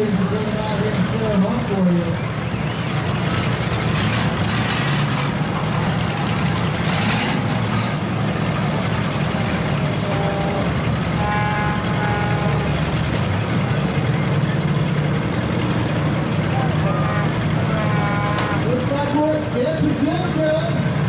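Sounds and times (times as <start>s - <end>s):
truck engines rumbling: 0.0s - 21.0s
brief higher tone: 10.0s - 12.7s.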